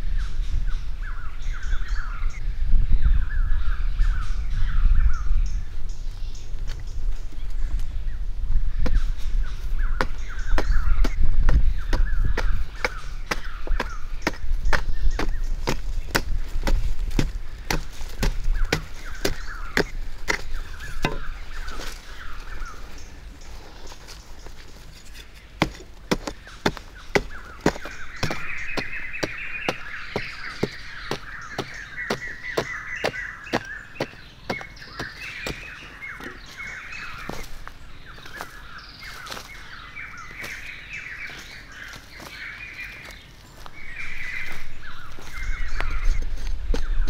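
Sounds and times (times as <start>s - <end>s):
birds calling and chattering: 0.0s - 47.0s
hoe chopping into dry soil: 9.9s - 22.2s, 25.0s - 36.4s.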